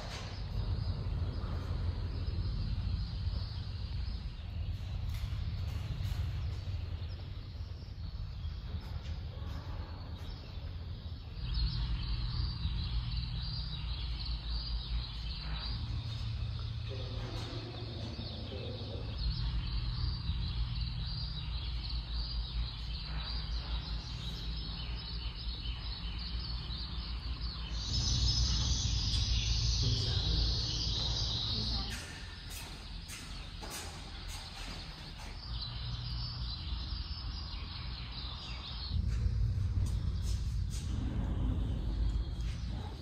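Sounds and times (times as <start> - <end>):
faint birds chirping: 0.0 - 43.0
wind rumble on microphone: 38.9 - 43.0.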